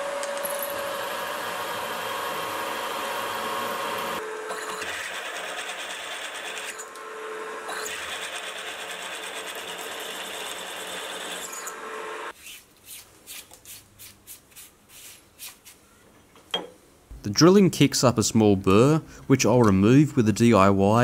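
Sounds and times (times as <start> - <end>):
milling machine drilling steel: 0.1 - 5.4.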